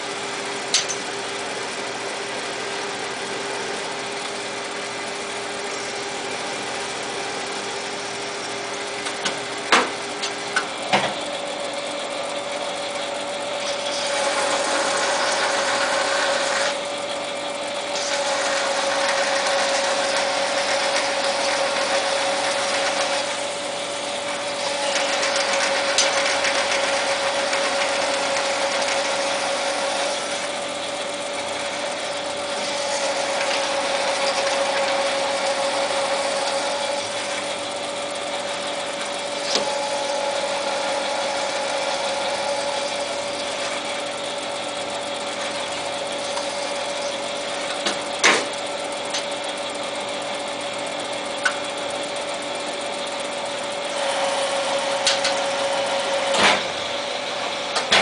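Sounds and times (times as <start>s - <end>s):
lathe running: 0.0s - 58.0s
rough metal cutting noise: 13.4s - 16.8s, 17.9s - 23.6s, 31.4s - 37.6s.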